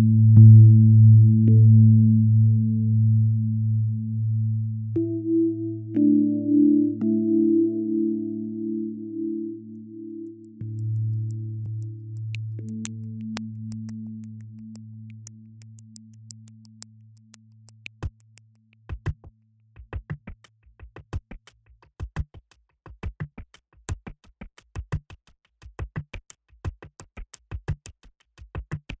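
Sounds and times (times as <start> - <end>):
low held synth tone: 0.0 - 17.4
drum-machine beat: 10.3 - 18.4.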